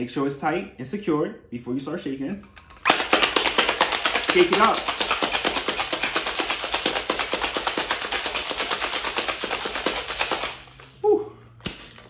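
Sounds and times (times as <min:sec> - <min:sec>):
ice rattling in cocktail shaker: 0:02.6 - 0:11.0.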